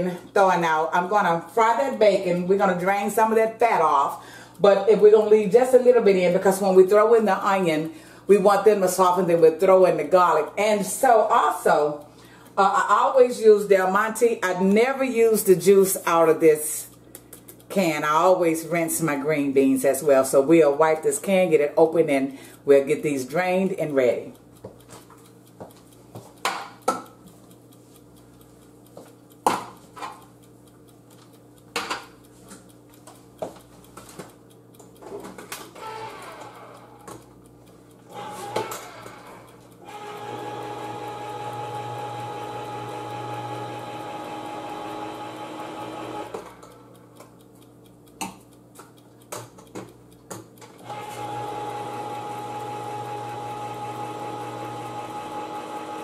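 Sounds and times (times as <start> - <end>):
can opener motor whine: 35.6 - 37.2, 38.1 - 46.9, 50.8 - 56.0.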